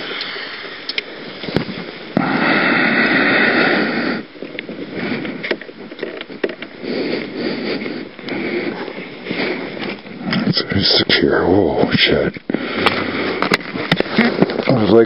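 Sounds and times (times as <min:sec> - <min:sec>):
handling noise in snow: 0:00.0 - 0:10.8
small clicks and knocks: 0:05.4 - 0:06.7.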